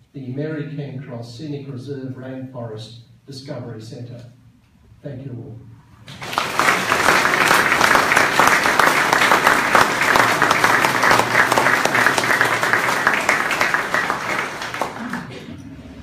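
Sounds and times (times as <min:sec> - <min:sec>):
audience applauding: 0:06.1 - 0:15.6.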